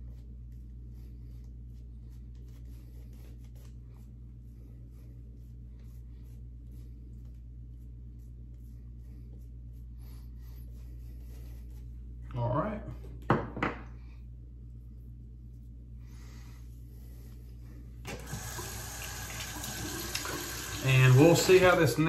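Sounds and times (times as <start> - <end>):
shaving brush scratchy strokes: 0.0 - 12.2, 20.8 - 22.0
steady low hum: 0.0 - 22.0.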